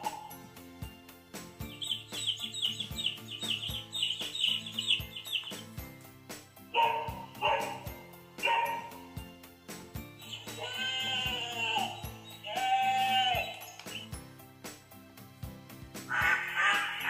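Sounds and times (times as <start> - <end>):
background tune with steady beat: 0.0 - 17.0
recorded chicks cheeping: 1.6 - 5.9, 6.8 - 9.1, 10.1 - 14.2, 16.1 - 17.0
recorded dog barking: 6.7 - 9.1.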